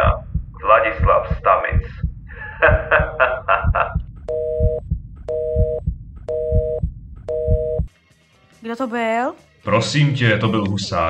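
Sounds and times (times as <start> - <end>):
low regular thumping: 0.0 - 7.9
telephone busy tone: 4.3 - 7.8.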